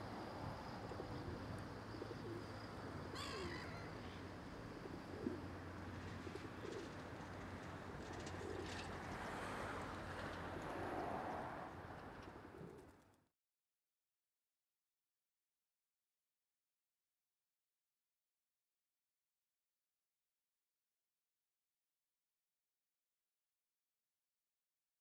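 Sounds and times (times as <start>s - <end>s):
outdoor background hum: 0.0s - 13.3s.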